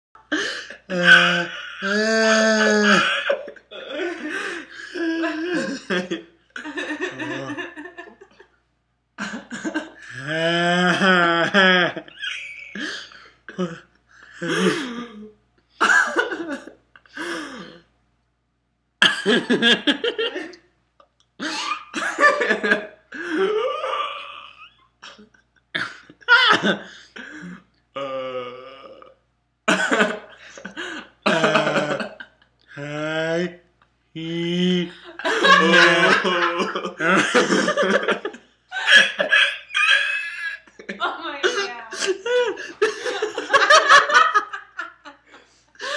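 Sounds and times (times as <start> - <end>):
men making goofy vocal noises: 0.3 - 6.2, 6.9 - 7.9, 9.2 - 13.8, 21.4 - 25.2, 26.6 - 29.1, 29.8 - 33.6, 34.2 - 44.8
men laughing: 0.3 - 8.5, 9.2 - 13.8, 14.4 - 17.8, 19.0 - 20.6, 21.4 - 27.6, 29.7 - 33.5, 34.2 - 45.9.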